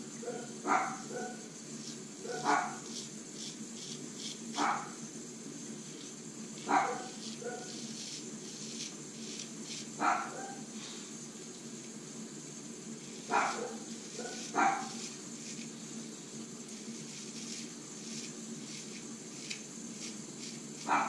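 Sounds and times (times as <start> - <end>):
dog barking: 0.2 - 1.4, 2.2 - 2.8, 4.6 - 5.0, 6.6 - 7.8, 10.0 - 10.7, 13.3 - 15.1, 20.8 - 21.0
razor scraping stubble: 1.7 - 5.0, 5.8 - 10.6, 13.0 - 16.0, 16.6 - 21.0.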